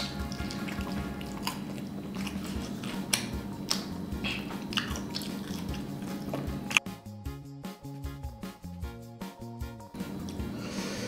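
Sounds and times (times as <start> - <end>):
chewing fried chicken: 0.0 - 6.8
wet mouth clicks and smacks: 0.0 - 6.9.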